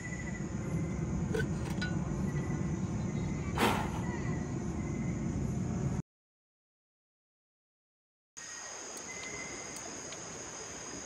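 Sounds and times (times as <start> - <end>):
crickets chirping: 0.0 - 6.0, 8.4 - 11.0.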